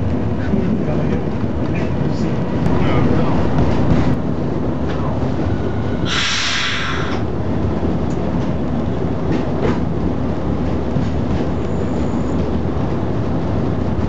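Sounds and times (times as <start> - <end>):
railcar engine and wheels rumble: 0.0 - 14.0
sharp hiss: 6.1 - 7.2.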